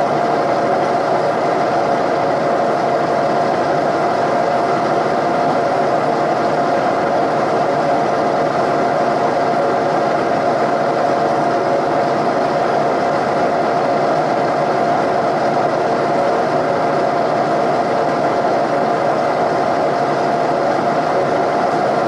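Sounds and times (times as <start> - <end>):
milling machine whine: 0.0 - 22.0.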